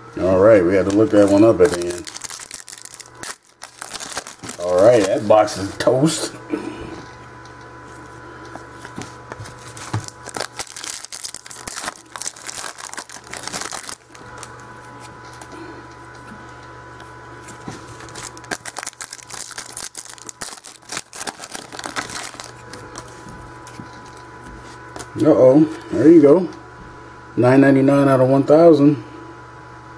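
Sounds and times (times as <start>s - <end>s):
foil wrapper crinkling and tearing: 0.6s - 5.5s, 8.9s - 15.5s, 17.9s - 24.2s
cards being handled: 0.7s - 5.7s, 7.9s - 16.2s, 17.4s - 25.2s.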